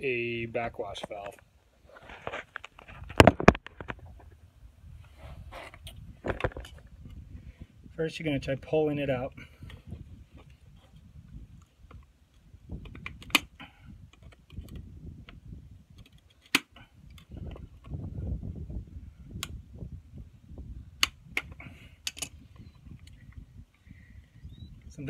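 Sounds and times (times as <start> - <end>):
scuffing and handling noise: 0.9 - 3.1.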